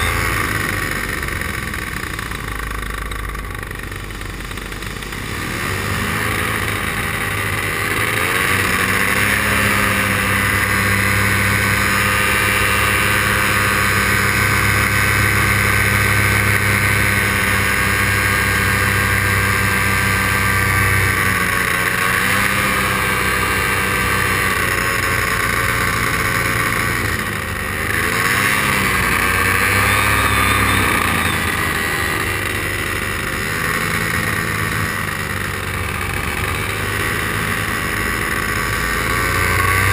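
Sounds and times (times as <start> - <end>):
paramotor engine running: 0.0 - 39.9.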